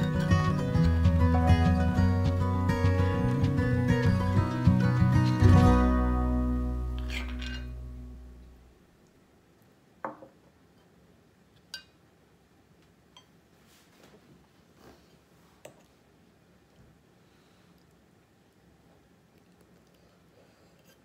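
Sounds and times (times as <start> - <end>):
acoustic guitar music: 0.0 - 8.6
metal spoon clinking on pan: 11.7 - 12.0.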